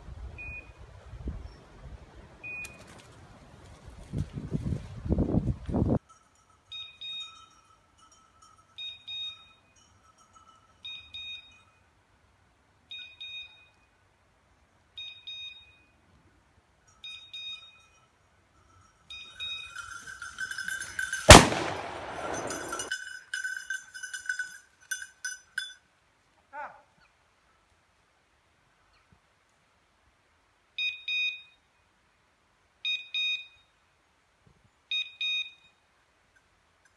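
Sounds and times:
beeper collar two-tone beeps: 0.4 - 0.7, 8.8 - 9.6, 10.8 - 11.7, 12.9 - 13.8, 15.0 - 15.9, 17.0 - 17.9, 30.8 - 31.6, 32.8 - 33.7, 34.9 - 35.8
shotgun shot: 21.3 - 22.9.

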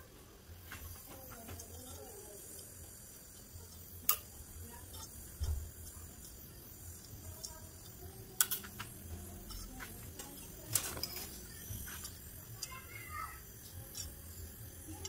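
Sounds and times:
gas torch flame rumble: 0.5 - 15.0.

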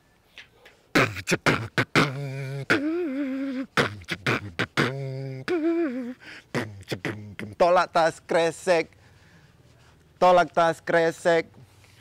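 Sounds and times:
beatboxing drum hits: 1.0 - 3.0, 3.8 - 5.2.

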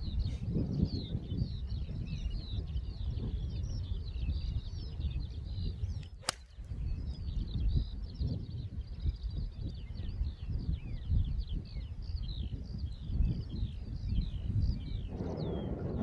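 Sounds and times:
birds chirping: 0.0 - 16.0
wind rumbling on microphone: 0.0 - 16.0
golf club striking ball: 6.2 - 6.6.

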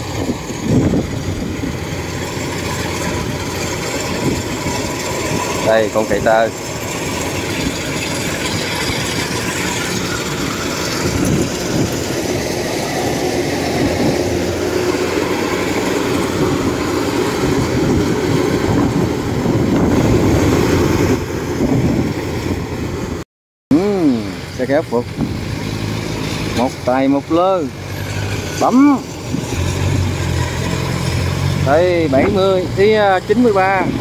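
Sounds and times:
clatter of harvester machinery: 0.0 - 23.2, 24.0 - 34.0
diesel engine under load: 0.0 - 34.0.

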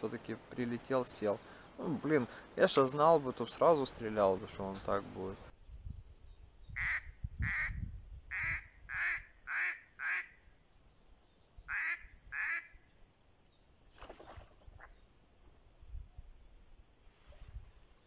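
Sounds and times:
small birds chirping: 3.0 - 15.3
duck quacking: 8.3 - 10.3, 11.7 - 12.7.

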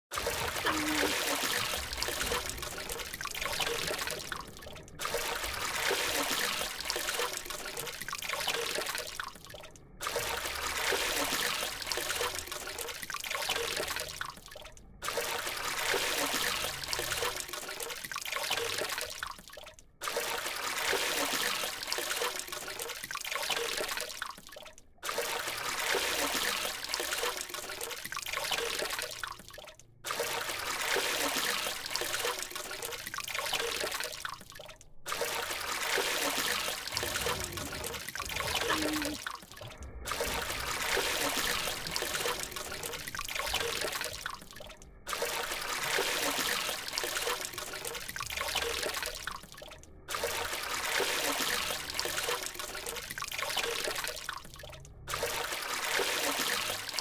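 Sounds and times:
water trickling and splashing: 0.0 - 57.0.

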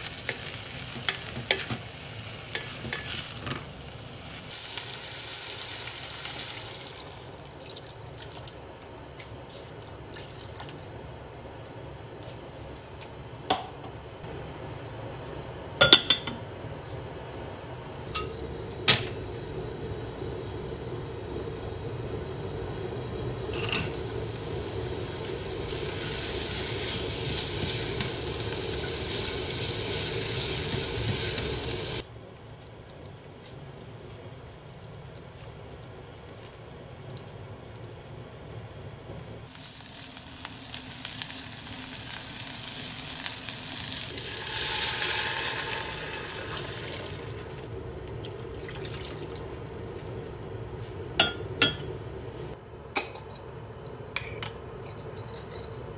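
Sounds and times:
vegetables sizzling in oil: 0.0 - 9.2, 21.2 - 32.1, 37.6 - 51.4.

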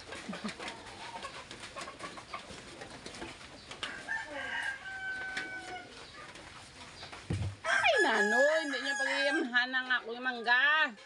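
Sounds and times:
rooster crowing: 3.9 - 5.9, 7.6 - 9.6.

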